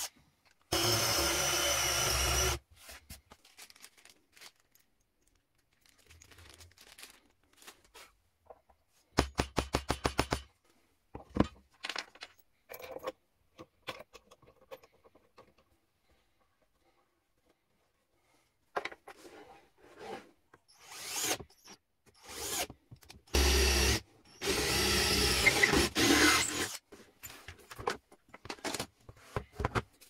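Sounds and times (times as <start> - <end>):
drill boring into wood: 0.7 - 2.6, 20.8 - 22.7, 23.3 - 26.8.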